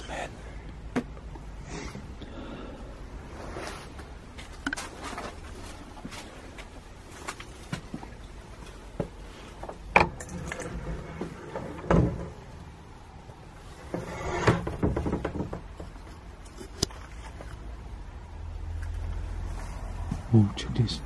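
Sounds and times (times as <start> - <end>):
door scraping: 9.8 - 12.9, 13.6 - 16.0
wooden door knocks and creaks: 14.4 - 15.9.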